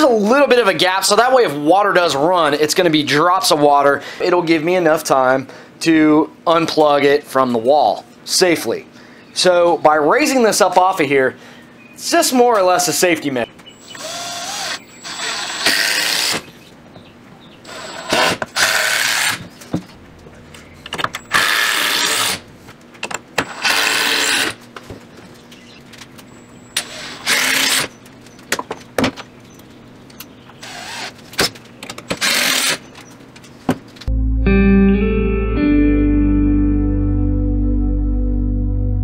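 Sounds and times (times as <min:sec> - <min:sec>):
impact driver driving screws: 0:21.3 - 0:22.4, 0:26.8 - 0:28.0, 0:32.1 - 0:32.9
guitar music: 0:34.1 - 0:39.0.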